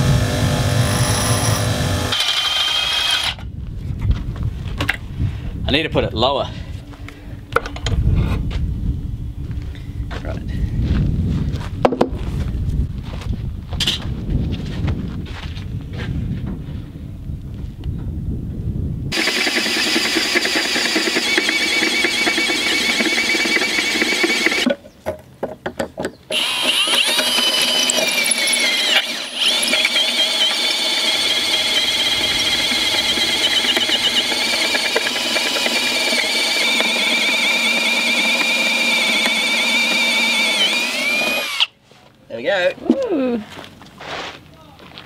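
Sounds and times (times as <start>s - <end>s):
drill bit squealing through steel: 19.2s - 24.6s, 26.3s - 41.7s.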